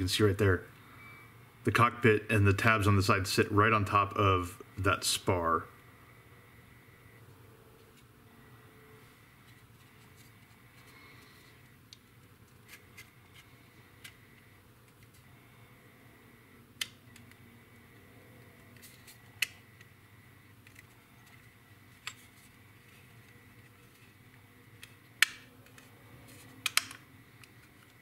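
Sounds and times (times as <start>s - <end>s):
faint steady hum: 0.0s - 28.0s
plastic parts clicking together: 20.6s - 22.4s, 23.2s - 28.0s.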